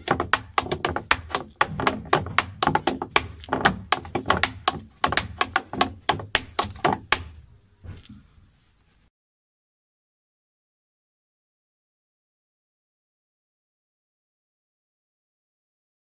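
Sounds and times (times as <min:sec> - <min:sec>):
hard shoes tapping on a board: 0:00.0 - 0:07.5
feet thudding together: 0:00.0 - 0:08.2.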